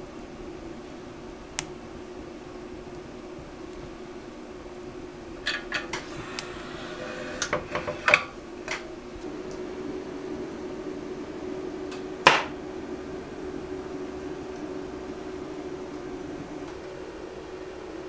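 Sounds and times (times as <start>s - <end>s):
fire crackling in stove: 0.0s - 18.0s
steady low hum: 0.0s - 18.0s
metal firebox door shutting: 5.5s - 8.8s.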